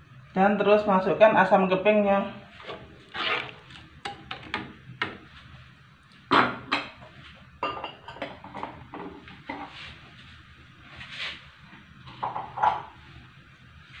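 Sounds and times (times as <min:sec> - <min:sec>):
metal ladle scraping a wok: 0:02.6 - 0:03.7.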